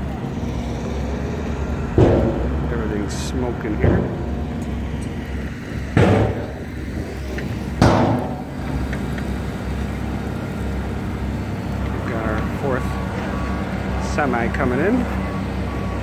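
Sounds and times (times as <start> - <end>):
diesel engines running: 0.0 - 16.0
loud bangs: 1.8 - 4.9, 5.8 - 7.0, 7.6 - 8.6.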